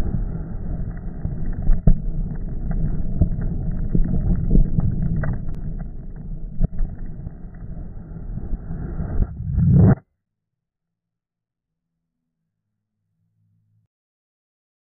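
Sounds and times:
wind rumbling on microphone: 0.0s - 10.0s
sharp pops and cracks: 0.9s - 7.7s.

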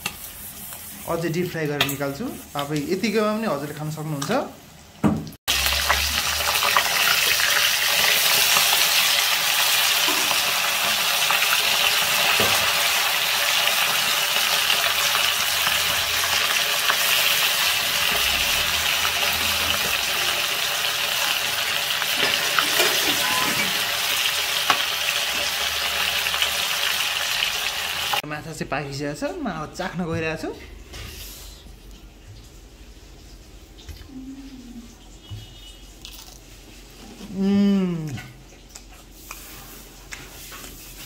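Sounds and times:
hot oil sizzling and crackling: 0.0s - 28.3s, 39.1s - 41.0s.

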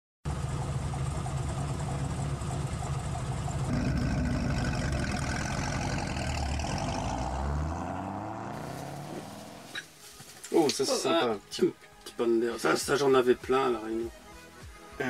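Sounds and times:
car engine idling: 0.2s - 9.8s.

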